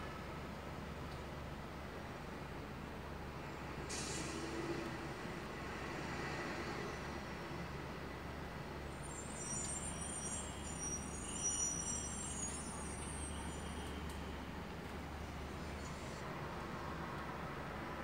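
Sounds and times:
street traffic rumble: 0.1s - 18.0s
high squeal: 8.9s - 14.7s.

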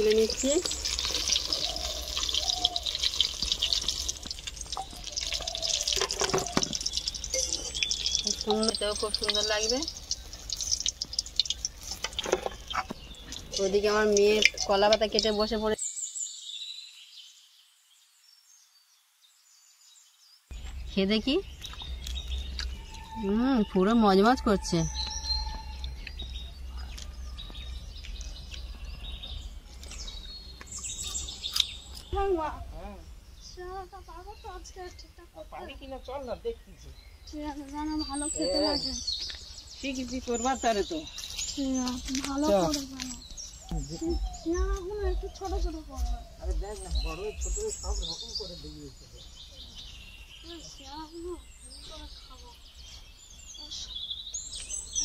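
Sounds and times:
food deep-frying in oil: 0.0s - 15.8s
small birds chirping: 0.0s - 55.0s
short high bird calls: 22.3s - 27.4s.

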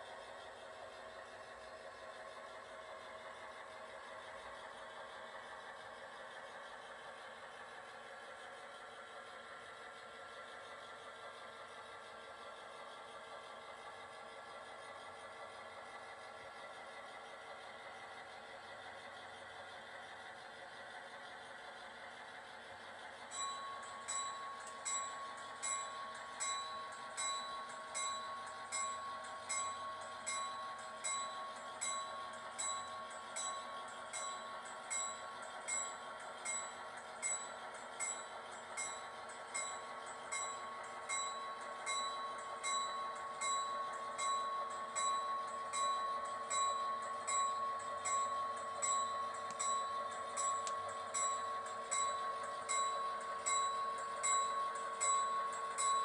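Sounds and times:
model locomotives running: 0.0s - 56.0s
model railroad bell dinging: 22.9s - 56.0s.

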